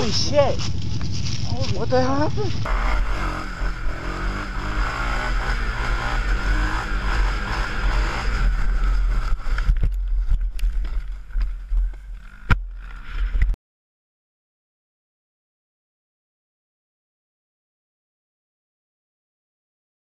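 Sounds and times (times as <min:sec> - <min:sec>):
quad engine running hard: 0:00.0 - 0:13.5.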